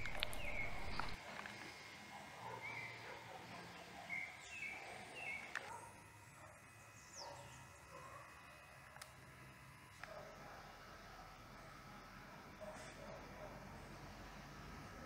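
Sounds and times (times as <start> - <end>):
high bird chirps: 0.0 - 1.2
faint outdoor ambience: 0.0 - 15.0.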